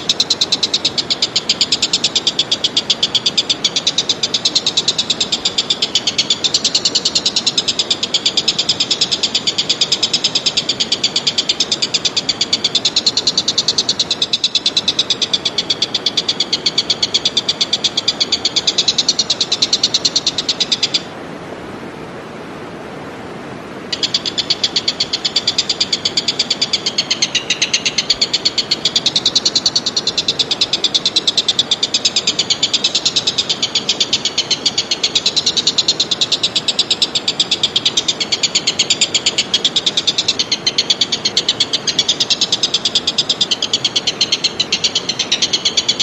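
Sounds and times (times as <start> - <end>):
rasping pulsed animal call: 23.9 - 46.0.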